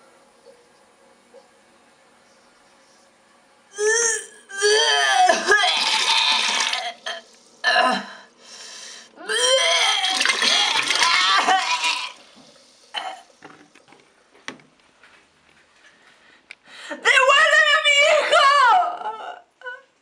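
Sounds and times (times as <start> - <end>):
person crying out and wailing: 3.8 - 7.1, 9.2 - 12.2.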